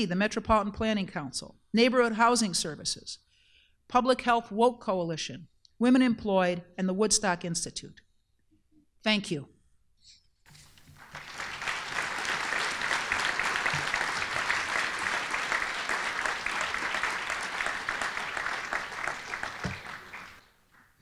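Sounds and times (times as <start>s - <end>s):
audience applauding: 10.6s - 21.0s.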